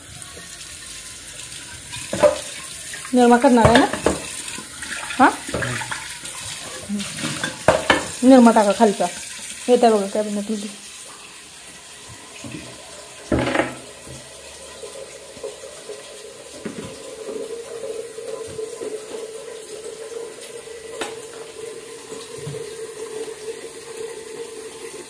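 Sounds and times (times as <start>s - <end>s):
tap water running into sink: 0.0s - 25.0s
knock: 13.3s - 14.2s.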